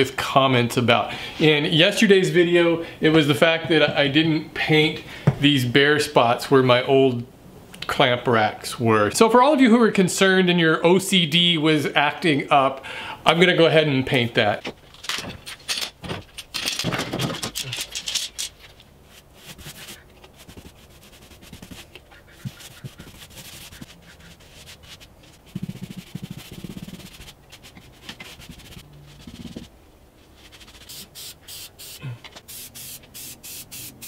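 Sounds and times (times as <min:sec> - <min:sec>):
loud clattering handling: 0:14.7 - 0:18.8
paint rubbing strokes on wall: 0:19.1 - 0:31.9
spray-paint can hissing: 0:30.8 - 0:34.0.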